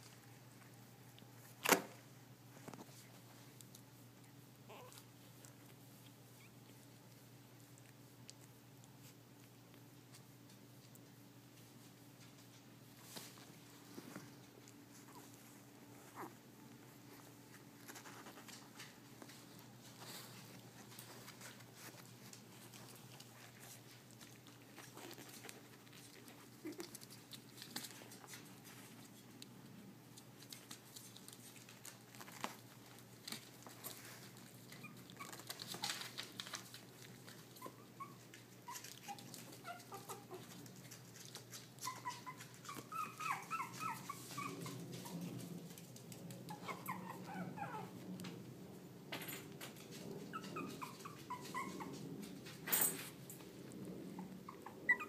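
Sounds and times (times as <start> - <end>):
puppies squeaking and whimpering: 4.7 - 5.0, 15.0 - 16.4, 37.5 - 40.6, 41.7 - 44.9, 46.5 - 47.9, 50.2 - 52.0, 54.2 - 55.0.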